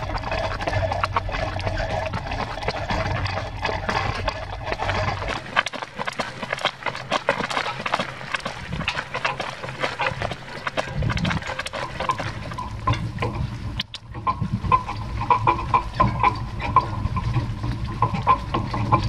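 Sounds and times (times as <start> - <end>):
horse hoofbeats: 0.0 - 13.3.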